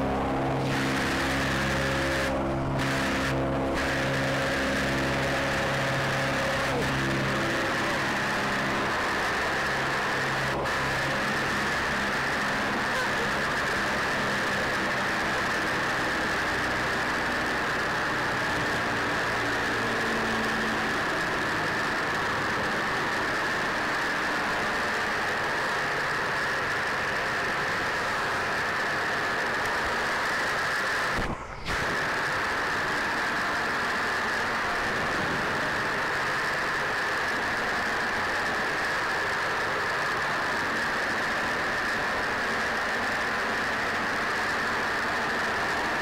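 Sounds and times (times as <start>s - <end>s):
aircraft engines droning: 0.0s - 46.0s
air rushing past: 31.1s - 32.5s.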